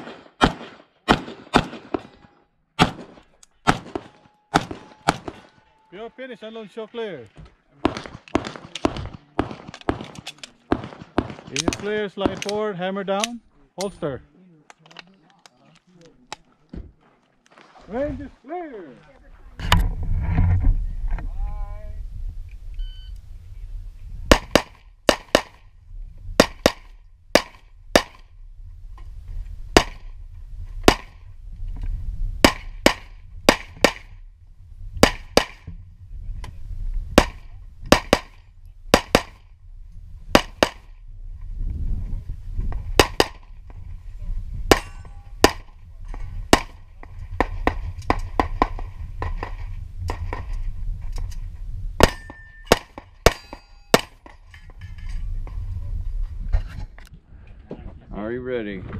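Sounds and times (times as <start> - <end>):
pistol shots: 0.0 - 2.2, 2.8 - 5.6, 7.8 - 12.6, 24.3 - 25.6, 26.4 - 28.2, 29.8 - 30.1, 32.4 - 34.2, 35.0 - 35.7, 37.2 - 39.4, 40.3 - 40.9, 43.0 - 43.5, 44.7 - 45.7, 46.5 - 46.8, 52.0 - 54.3
wind rumble on microphone: 19.2 - 53.7, 54.3 - 58.9
metallic pings of steel targets: 44.7 - 45.5, 52.0 - 55.2.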